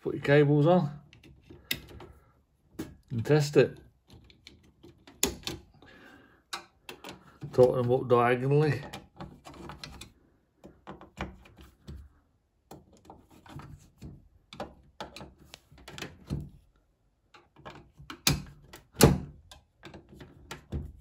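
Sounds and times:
screwdriver clicks and scrapes on metal: 6.5s - 8.1s, 8.7s - 12.0s.

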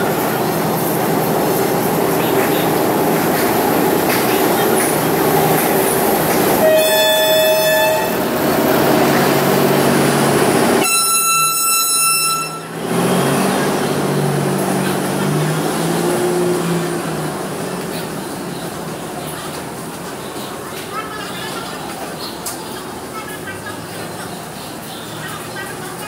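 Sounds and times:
locomotive engines rumbling: 0.0s - 26.0s
train horn blasts: 6.6s - 8.3s, 10.8s - 12.8s.

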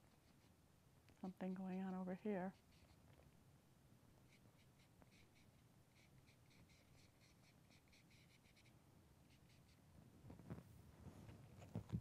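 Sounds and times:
paintbrush strokes on paper: 0.0s - 0.6s, 1.2s - 3.0s, 4.2s - 8.7s, 9.3s - 9.8s.

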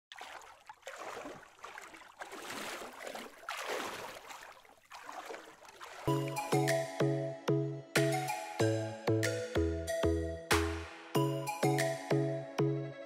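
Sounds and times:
small waves lapping: 0.0s - 6.5s
electronic music with pulsing chords: 6.1s - 13.0s.

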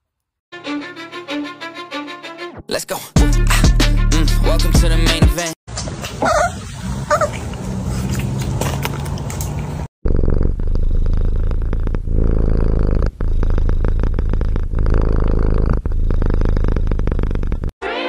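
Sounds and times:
cat purring loudly: 10.0s - 17.7s.

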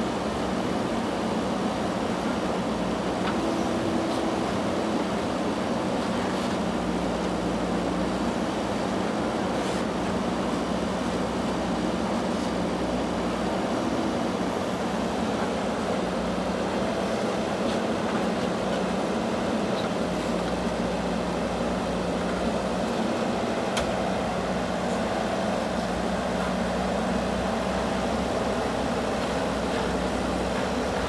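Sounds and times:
diesel engine running: 0.0s - 31.0s
backhoe arm digging soil: 15.0s - 31.0s.

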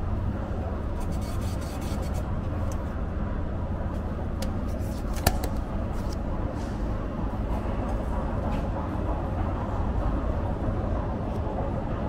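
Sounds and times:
rail vehicle rumble: 0.0s - 12.0s.

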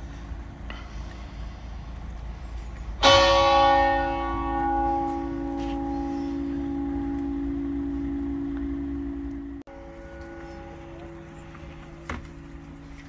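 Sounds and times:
church bell tolling: 3.0s - 13.0s.

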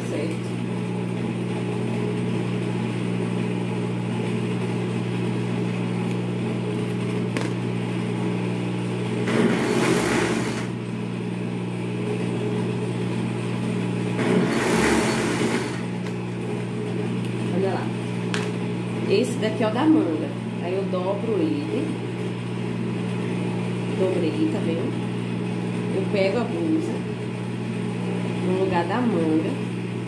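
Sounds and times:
overlock machine motor humming: 0.5s - 19.1s
overlock machine sewing: 9.2s - 10.8s, 14.2s - 16.1s.

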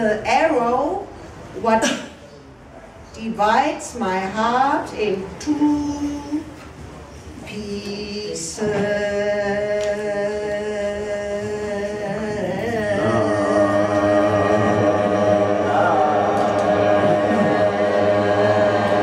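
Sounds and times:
droning chant-like music: 8.6s - 19.0s.

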